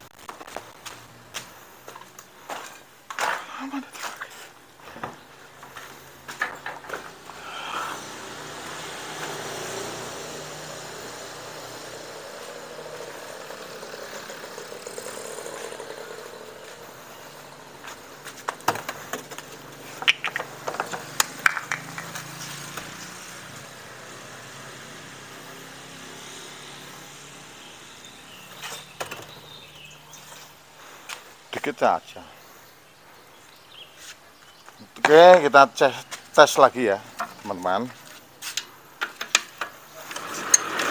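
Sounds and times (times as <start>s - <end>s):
outdoor background noise: 0.0s - 40.9s
objects clicking and knocking: 6.3s - 7.2s, 18.4s - 22.9s.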